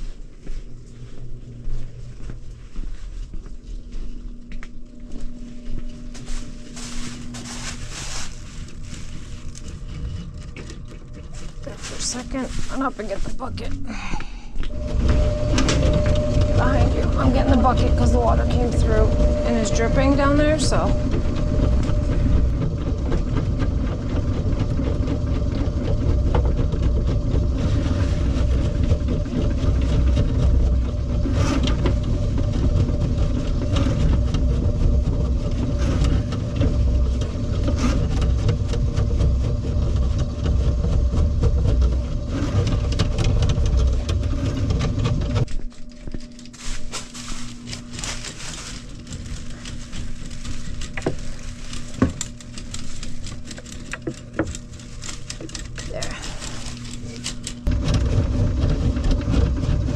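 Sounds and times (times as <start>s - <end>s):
drain cleaning machine motor rumble: 0.0s - 59.9s
rubbing: 6.2s - 13.6s, 46.5s - 59.9s.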